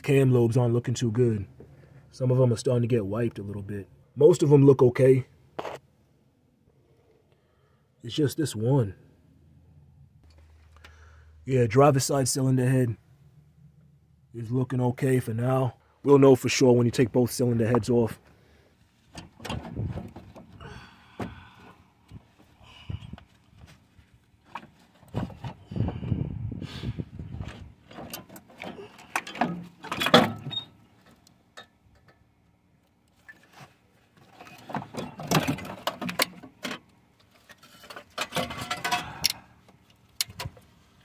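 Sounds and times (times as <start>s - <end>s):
metal clunks and scrapes: 19.0s - 20.6s, 24.4s - 26.1s, 27.2s - 32.2s, 33.2s - 39.4s.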